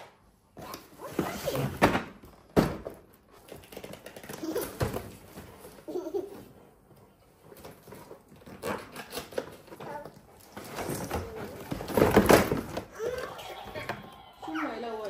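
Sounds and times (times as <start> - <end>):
cardboard rustling: 7.2 - 12.9.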